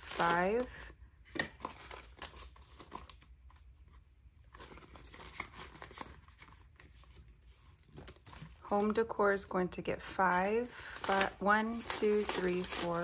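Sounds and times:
paper bills rustling: 0.0s - 0.9s, 9.9s - 13.0s.

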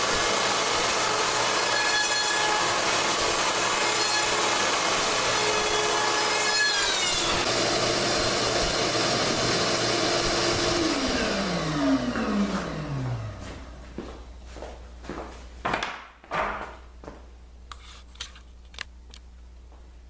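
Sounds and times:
router cutting wood: 0.0s - 13.4s
router motor winding down: 0.0s - 13.4s.

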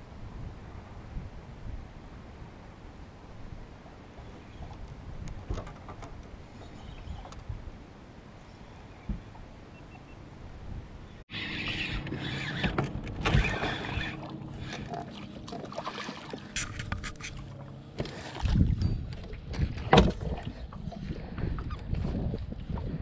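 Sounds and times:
fish splashing: 13.3s - 17.6s.

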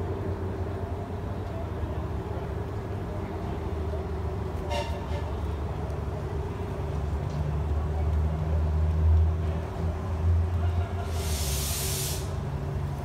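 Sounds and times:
steam locomotive low rumble: 0.0s - 13.0s
steam hiss burst: 11.0s - 12.4s.

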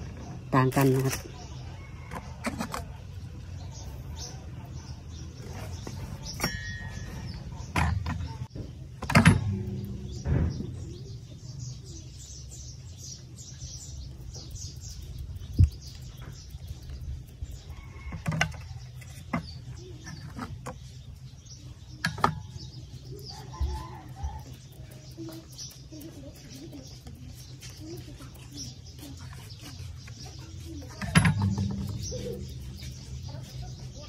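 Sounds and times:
small birds chirping: 0.0s - 34.0s
steady low hum: 3.1s - 17.9s
sharp clicks and knocks: 7.6s - 11.0s, 22.0s - 22.8s, 23.6s - 33.6s.

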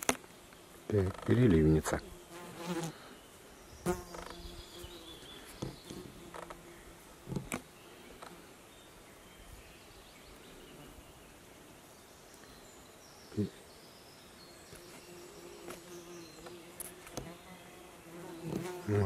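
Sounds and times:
faint outdoor background: 0.0s - 19.0s
flying insect buzzing: 1.0s - 8.6s, 14.7s - 19.0s.

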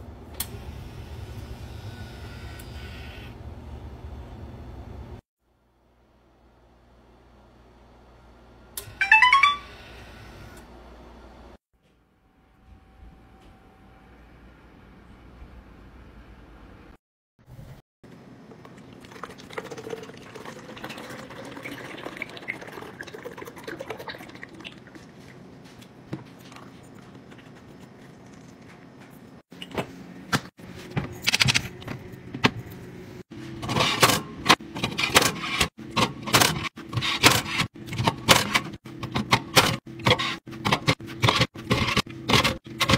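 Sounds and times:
liquid pouring into glass carafe: 18.6s - 25.2s.

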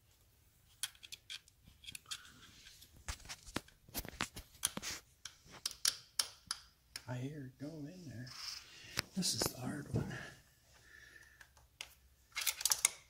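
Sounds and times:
screwdriver clicks and scrapes: 0.7s - 2.8s, 11.5s - 13.0s.

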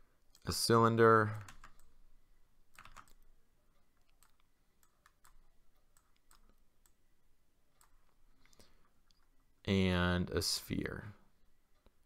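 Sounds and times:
computer mouse clicking: 1.4s - 1.9s, 2.7s - 7.0s, 7.8s - 9.3s.

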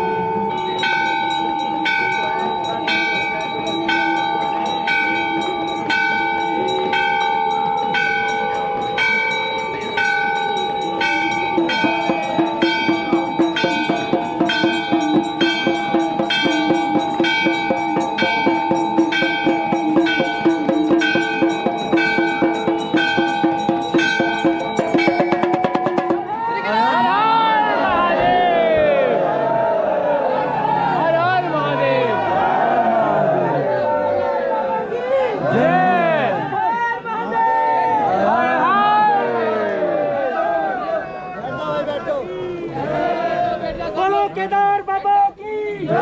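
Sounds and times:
temple bells ringing: 0.0s - 26.6s.

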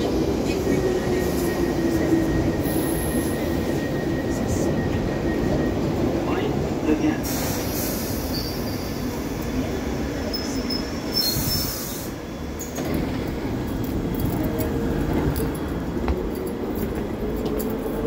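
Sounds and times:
low train rumble: 0.0s - 18.0s
train doors opening: 0.0s - 18.0s
train brakes squealing: 0.6s - 13.3s
air hiss: 7.2s - 8.4s, 11.2s - 12.3s.

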